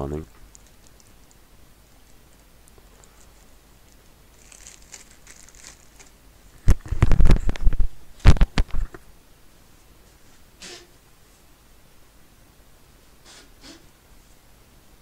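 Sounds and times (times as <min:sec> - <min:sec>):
tissue rustling: 0:02.8 - 0:06.2
person blowing nose: 0:10.6 - 0:10.9, 0:13.2 - 0:13.9.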